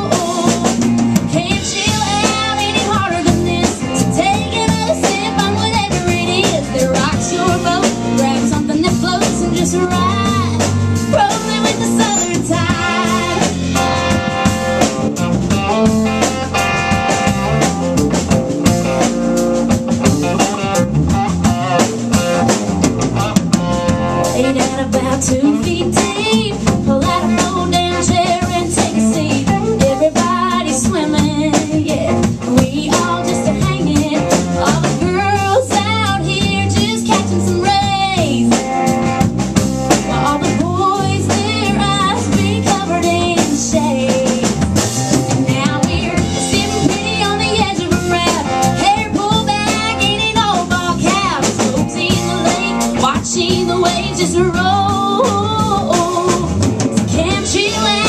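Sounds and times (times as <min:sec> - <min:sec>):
woman singing into microphone: 0:00.0 - 0:14.1, 0:24.2 - 0:38.7, 0:40.0 - 0:44.8, 0:45.4 - 0:58.0
drum kit beat: 0:00.0 - 0:58.0
electric guitar: 0:00.0 - 0:58.0.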